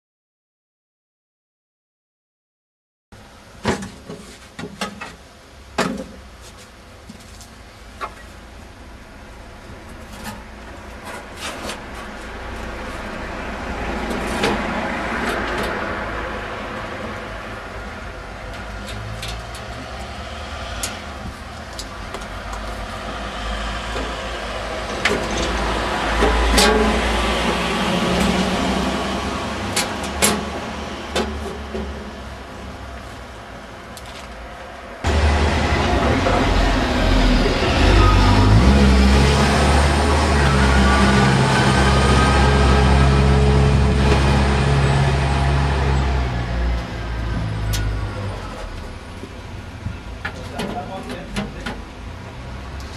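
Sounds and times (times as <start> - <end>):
large engine idling: 35.1 - 38.8.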